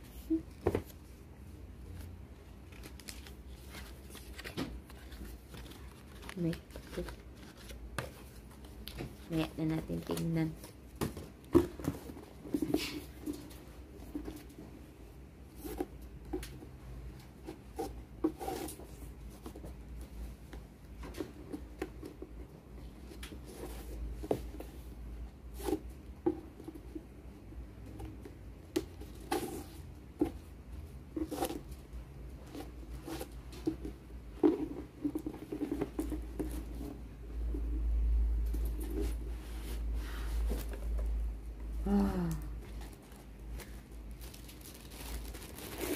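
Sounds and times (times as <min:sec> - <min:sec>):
ribbon rustling: 0:02.0 - 0:10.8, 0:42.4 - 0:45.9.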